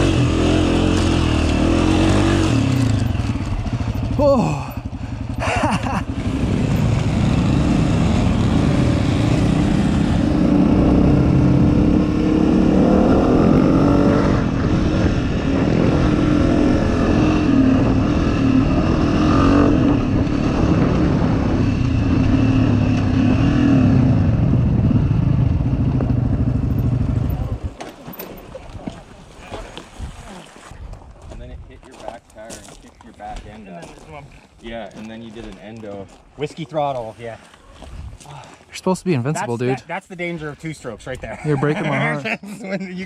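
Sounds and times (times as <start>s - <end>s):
dirt bike engine: 0.0s - 28.4s
wind noise: 6.5s - 27.8s, 29.9s - 31.9s, 37.8s - 38.2s.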